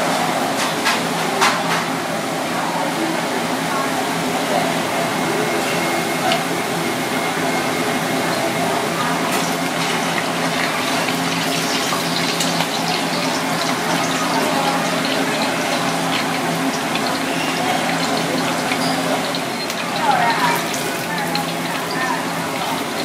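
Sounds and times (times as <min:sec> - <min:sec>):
deep-frying sizzle in oil: 0:04.1 - 0:23.0
oil crackling and popping: 0:09.3 - 0:23.0.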